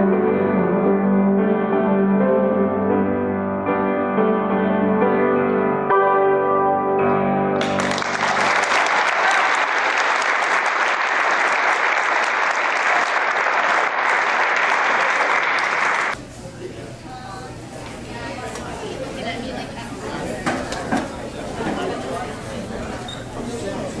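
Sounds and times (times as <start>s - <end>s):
piano chords: 0.0s - 9.0s
audience applauding: 7.6s - 16.2s.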